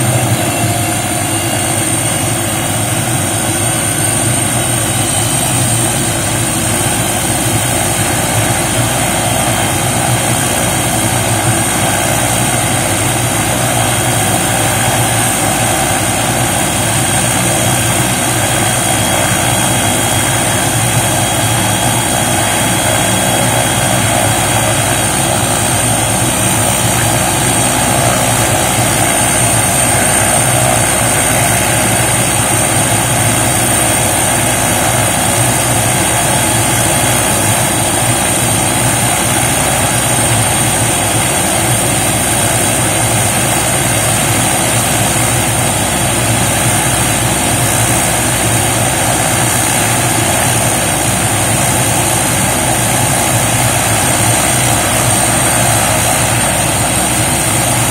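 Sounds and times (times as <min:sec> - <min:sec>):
helicopter engine running: 0:00.0 - 0:57.9
high turbine whine: 0:00.0 - 0:57.9.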